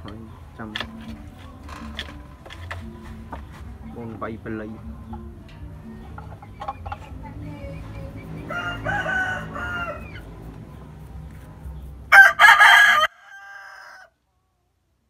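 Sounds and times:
rooster crowing: 8.4 - 10.3, 12.1 - 14.2.

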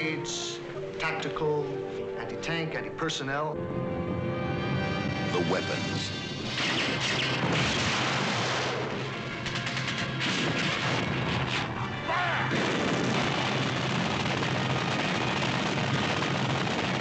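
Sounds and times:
film score music: 0.0 - 17.0
gunfire burst: 6.4 - 11.8, 12.5 - 17.0
explosions in water: 6.6 - 9.2, 12.5 - 17.0.

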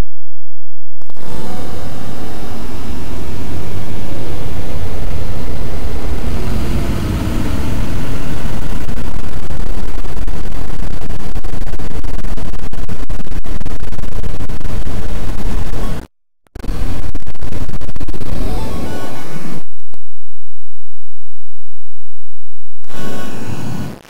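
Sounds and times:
dense bass-heavy noise music: 1.0 - 15.8.

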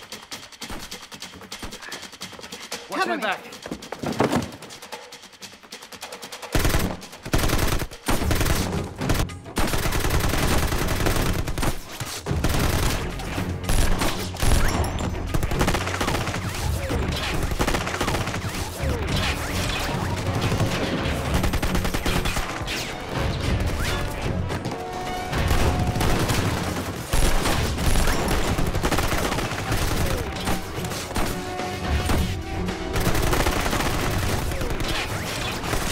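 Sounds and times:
rapid automatic gunfire: 6.2 - 14.7, 15.3 - 22.7, 25.5 - 31.5, 33.0 - 35.9.

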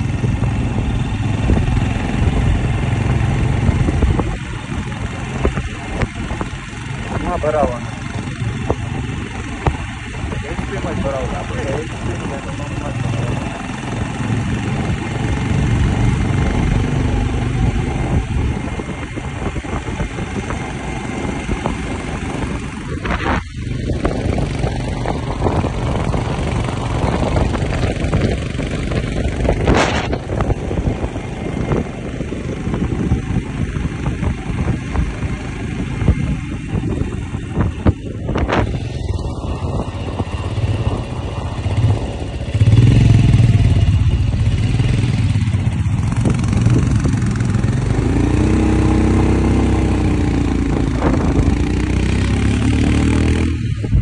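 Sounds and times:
motorcycle engine rumble: 0.0 - 54.0
road and wind noise: 0.0 - 54.0.

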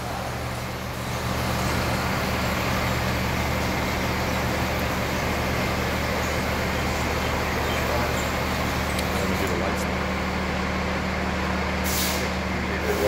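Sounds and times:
diesel engine idling: 0.0 - 13.0.

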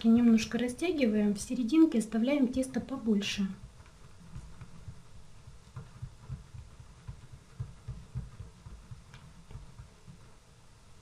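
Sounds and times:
hands patting dough on wood: 3.6 - 10.6.

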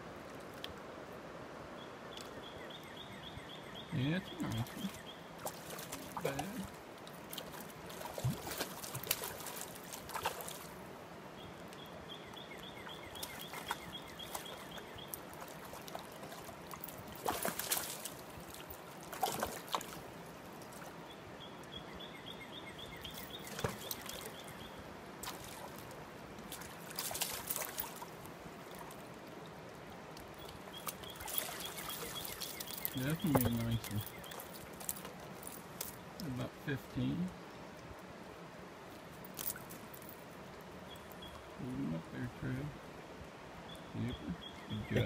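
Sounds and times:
moving water: 0.0 - 45.0
fish splashing in water: 4.6 - 10.8, 13.1 - 20.9, 23.1 - 24.5, 26.5 - 29.1, 30.4 - 35.2.

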